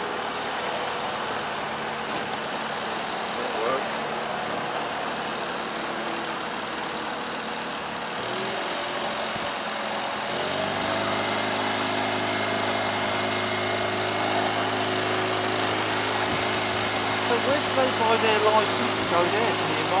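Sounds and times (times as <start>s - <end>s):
boat engine running: 0.0s - 20.0s.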